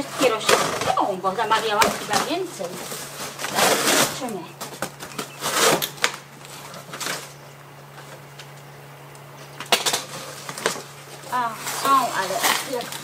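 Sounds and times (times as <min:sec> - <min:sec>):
cardboard box rustling and scraping: 0:00.0 - 0:07.3, 0:10.1 - 0:13.0
sharp crackles: 0:00.3 - 0:13.0.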